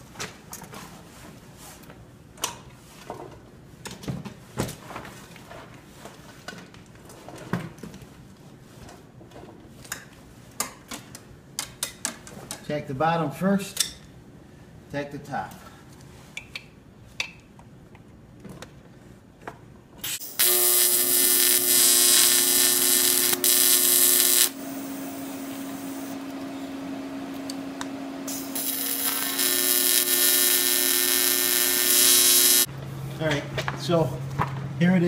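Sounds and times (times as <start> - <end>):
welding arc buzzing and hissing: 20.0 - 26.7, 28.2 - 32.7.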